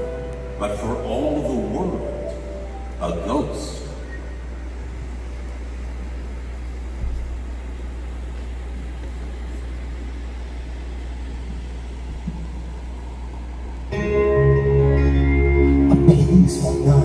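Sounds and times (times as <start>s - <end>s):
room tone hiss: 0.0s - 17.0s
steady low hum: 0.0s - 17.0s.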